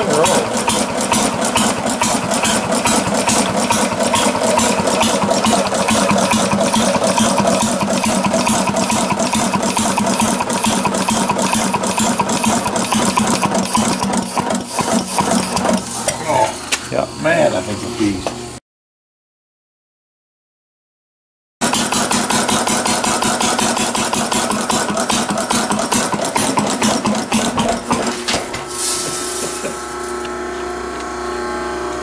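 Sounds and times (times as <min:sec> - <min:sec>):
two-stroke engine running: 0:00.0 - 0:15.9, 0:21.6 - 0:32.0.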